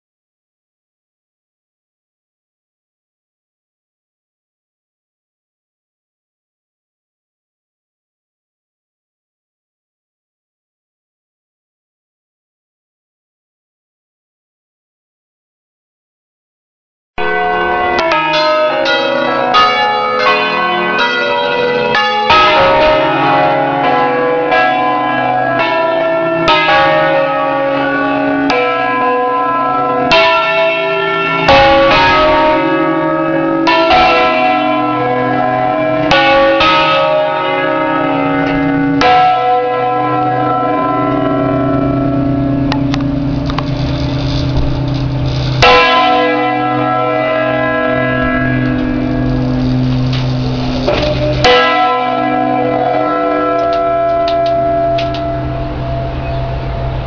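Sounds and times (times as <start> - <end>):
church bells ringing: 17.2 - 57.0.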